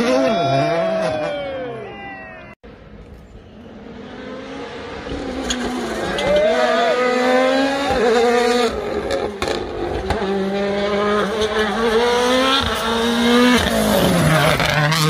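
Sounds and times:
rally car engine at high revs: 3.8 - 15.0.

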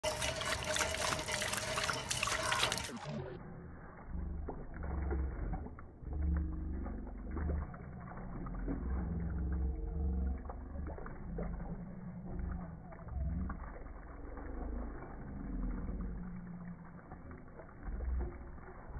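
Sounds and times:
water splashing on concrete: 0.0 - 18.9
low rumbling: 3.0 - 18.9.

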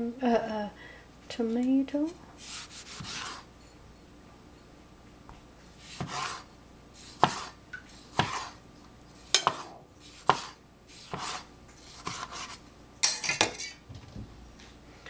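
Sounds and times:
cleaver chopping on cutting board: 6.0 - 6.4, 7.2 - 7.5, 8.1 - 8.5, 9.4 - 11.4.

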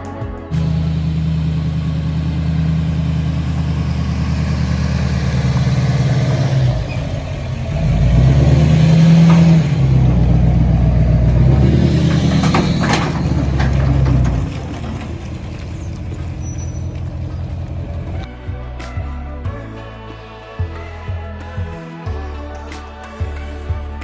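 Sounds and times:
pickup truck engine: 0.5 - 18.3.

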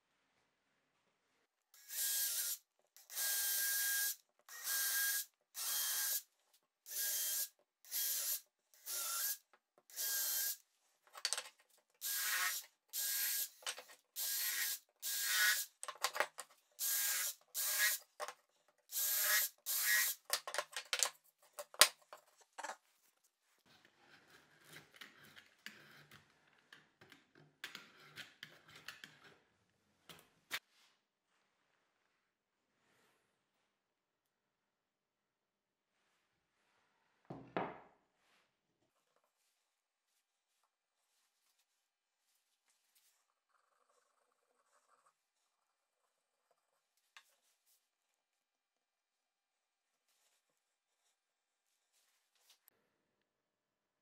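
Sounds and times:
cordless drill whining into wood: 1.8 - 6.2, 6.9 - 10.6, 12.0 - 13.6.

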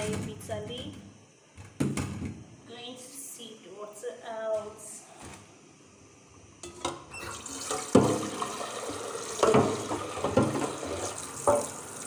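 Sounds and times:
water running into a metal pot: 7.2 - 12.0
pot hitting sink: 7.6 - 11.9.

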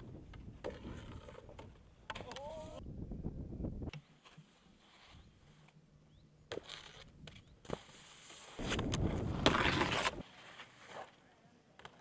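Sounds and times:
skis scraping over snow: 7.7 - 11.3.

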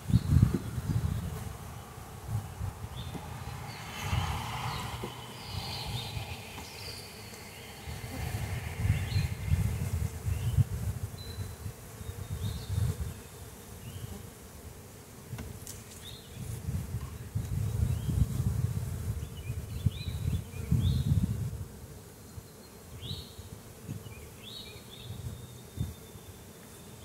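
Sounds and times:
honeybees buzzing: 0.0 - 15.2.

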